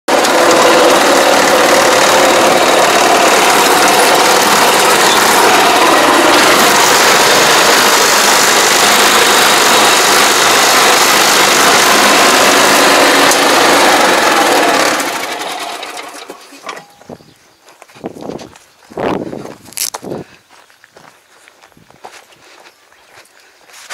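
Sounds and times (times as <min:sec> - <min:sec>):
tractor engine running: 0:00.1 - 0:17.3, 0:19.4 - 0:20.0.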